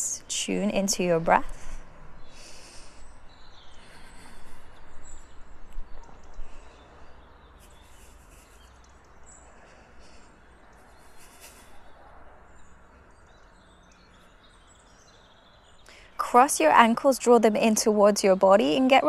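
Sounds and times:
faint bird chirps: 2.2 - 16.3.

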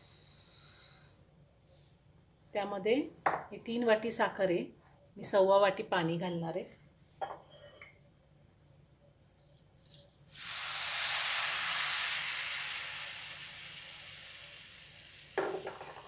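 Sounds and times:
water hissing on sugar: 9.8 - 16.0.

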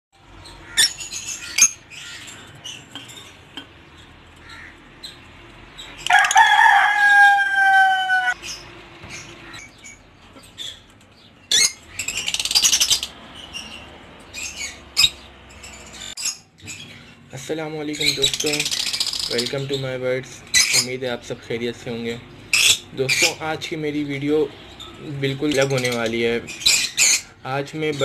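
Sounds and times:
rooster crowing: 6.0 - 8.4.

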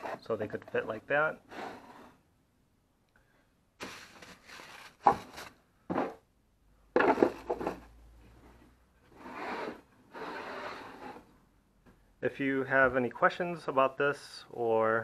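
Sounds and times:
pan scraping against wood: 9.1 - 11.3.

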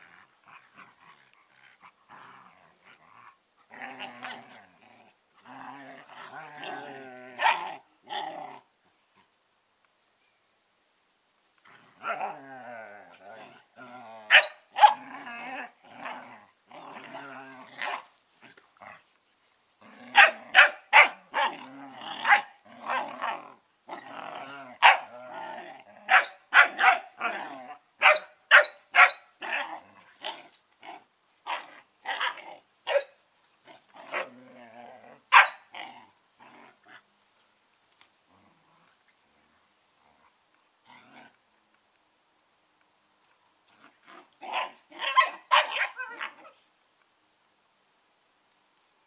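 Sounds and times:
puppies barking: 44.6 - 46.3.

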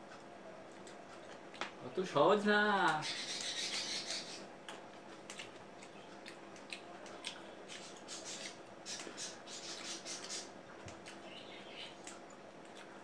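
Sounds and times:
chewing and crunching fruit: 4.6 - 11.4, 12.0 - 13.0.

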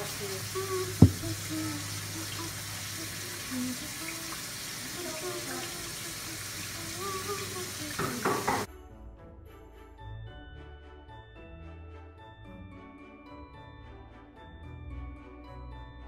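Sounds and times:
dishes washed with sponge: 0.0 - 8.7
faucet running into sink: 0.0 - 8.7
water splashes: 0.0 - 8.7
sharp knock: 1.0 - 1.3.

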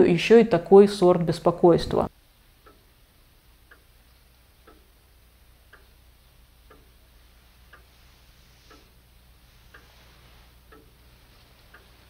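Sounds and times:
clock ticking: 2.5 - 12.0.

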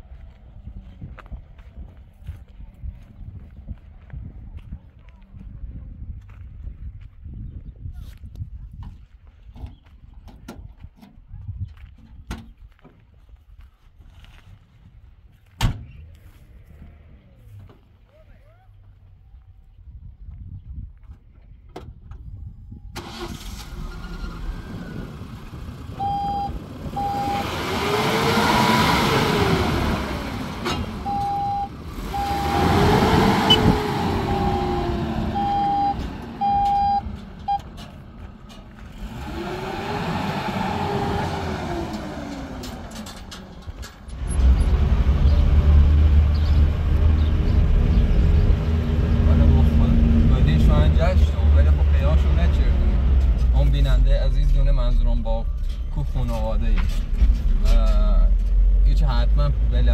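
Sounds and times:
vehicle engine revving: 23.0 - 59.9
on-off beeping tone: 26.0 - 27.5, 31.0 - 37.6
loud low rumble: 44.1 - 59.9.

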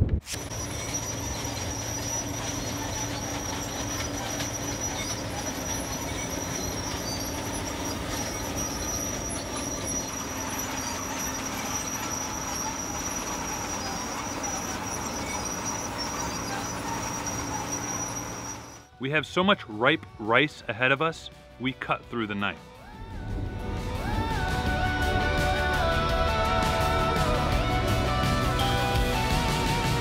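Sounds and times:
high-pitched machine whine: 0.3 - 19.0, 22.8 - 30.0
combine harvester drone: 0.3 - 20.4, 22.8 - 30.0.

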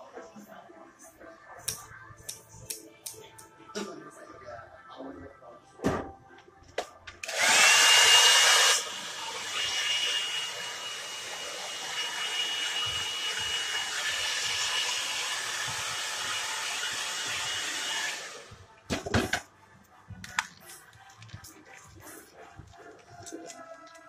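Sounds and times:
electric blower motor whining: 7.2 - 18.5.

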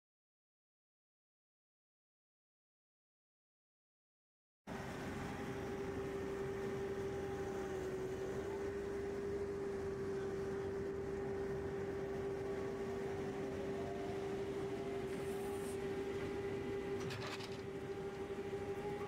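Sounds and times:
machine whining steadily: 4.7 - 19.0.

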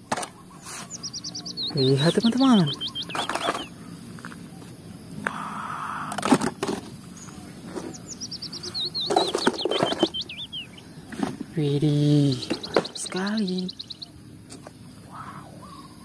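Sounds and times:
songbird whistling: 0.4 - 3.9, 7.2 - 11.0, 12.2 - 14.2
plastic toys clattering: 6.1 - 7.0, 9.0 - 10.2.

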